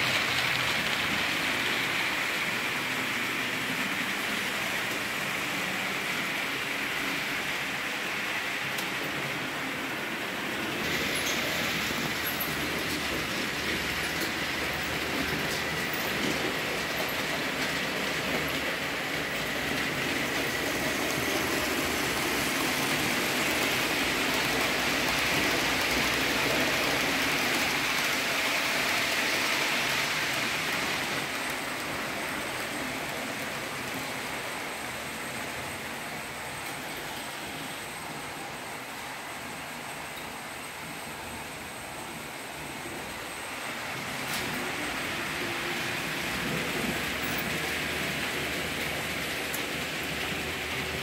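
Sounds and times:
model train motors whirring: 0:00.0 - 0:51.0
metal wheels rattling on rails: 0:10.6 - 0:32.6.

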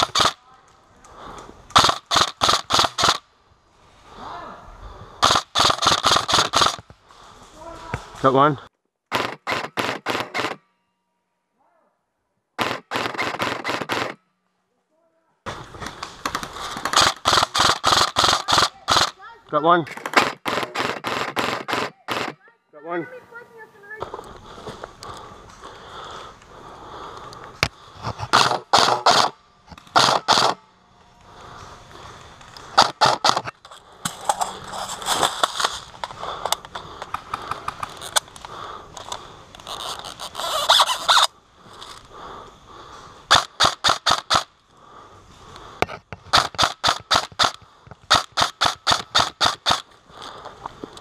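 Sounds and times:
airsoft rifle firing shots: 0:00.0 - 0:00.4, 0:01.7 - 0:03.3, 0:05.2 - 0:06.8, 0:09.1 - 0:10.7, 0:12.6 - 0:14.3, 0:15.5 - 0:19.2, 0:20.0 - 0:22.4, 0:28.2 - 0:30.6, 0:32.7 - 0:34.3, 0:43.3 - 0:44.5, 0:46.3 - 0:49.9
rustling and scraping: 0:31.0 - 0:42.1.

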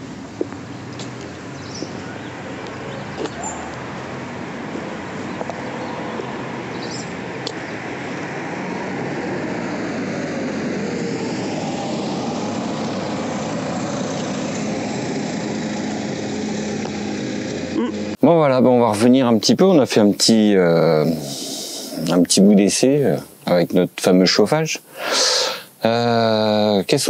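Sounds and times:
vehicle running with road noise: 0:00.0 - 0:20.3.

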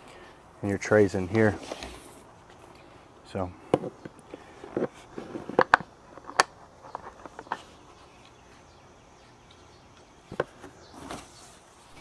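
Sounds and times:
plastic clicks: 0:05.5 - 0:07.6.

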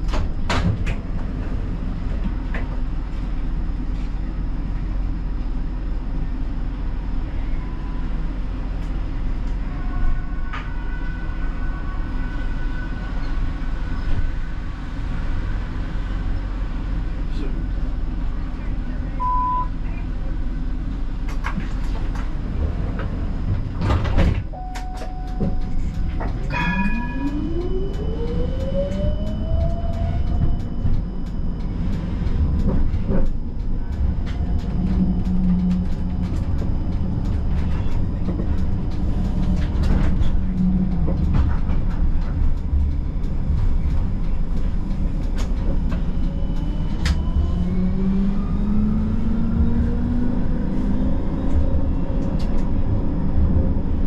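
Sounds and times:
tram rumbling on rails: 0:00.0 - 0:54.0
wheels clicking on track: 0:24.7 - 0:48.8.

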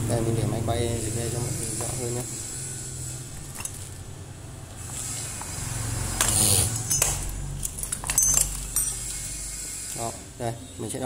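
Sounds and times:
metal parts clicking: 0:03.4 - 0:04.0, 0:06.2 - 0:10.1.

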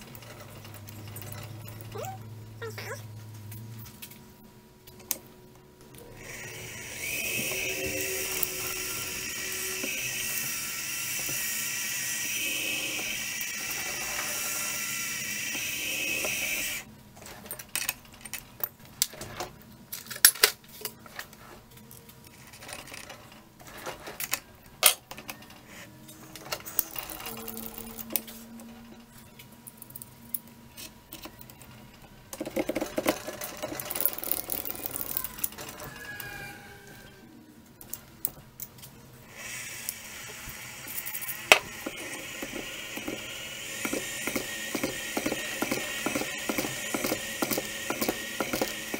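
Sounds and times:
milling machine spindle running: 0:06.0 - 0:16.9, 0:39.4 - 0:48.9.

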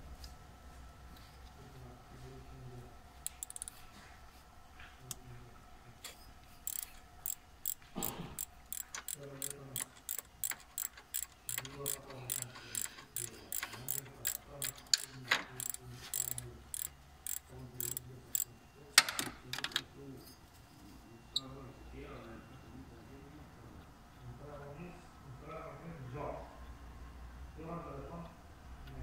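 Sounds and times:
ratchet rasp: 0:03.2 - 0:03.8, 0:06.6 - 0:18.5
ratchet wrench clicking: 0:03.2 - 0:03.8, 0:06.6 - 0:18.5.

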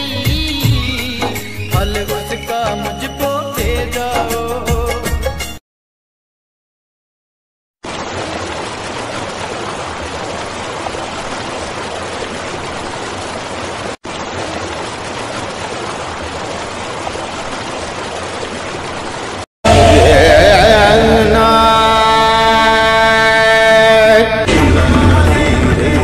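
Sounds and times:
river water flowing: 0:07.8 - 0:19.5.

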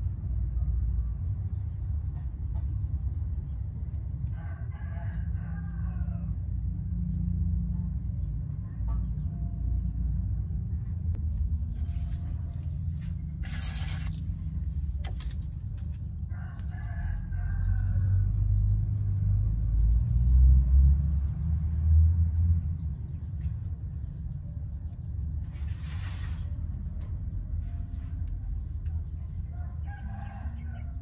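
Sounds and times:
steady low rumble: 0:00.0 - 0:31.0
rooster crowing: 0:04.3 - 0:06.4, 0:16.3 - 0:18.3, 0:29.5 - 0:31.0.

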